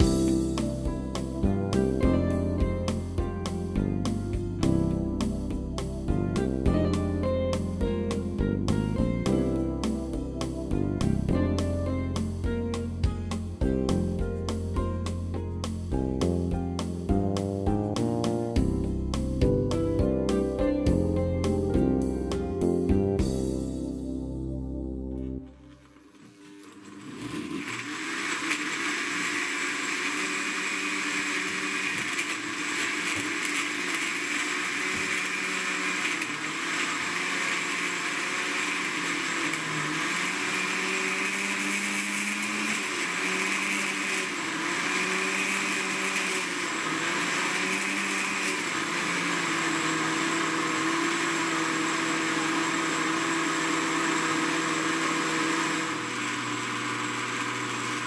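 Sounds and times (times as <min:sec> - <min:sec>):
blender running: 0:00.0 - 0:02.4, 0:25.6 - 0:58.0.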